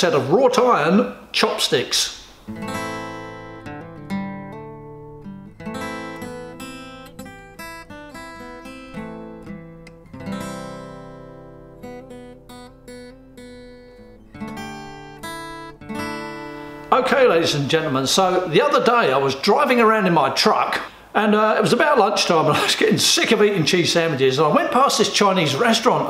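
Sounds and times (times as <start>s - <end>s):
acoustic guitar picking and strumming: 2.3s - 21.0s.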